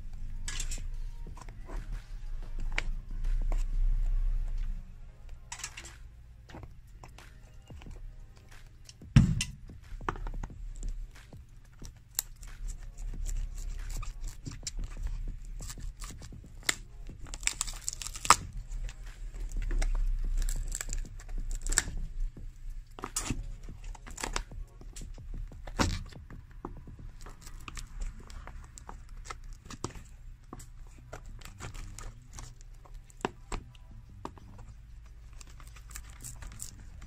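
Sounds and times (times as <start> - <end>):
shoe sole scraping and tearing: 11.8 - 22.2.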